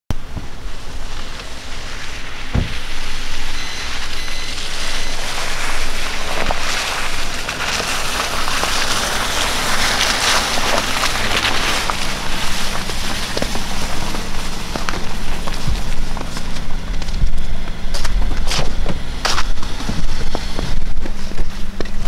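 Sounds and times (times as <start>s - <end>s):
tyres crackling through slush: 0.1s - 22.0s
low thump: 2.5s - 3.1s.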